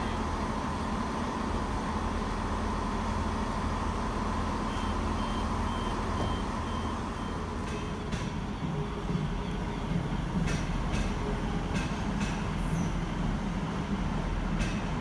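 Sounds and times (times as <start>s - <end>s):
train engine idling hum: 0.0s - 15.0s.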